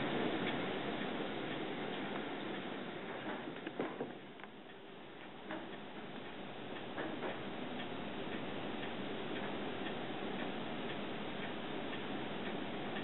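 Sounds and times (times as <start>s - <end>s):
rain and wind rushing: 0.0s - 4.4s.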